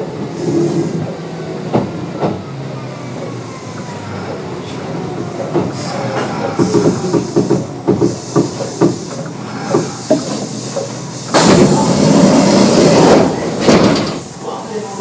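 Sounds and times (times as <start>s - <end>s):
train knocks and thuds: 1.6s - 2.5s, 4.3s - 14.3s
loud air hiss: 5.7s - 14.9s.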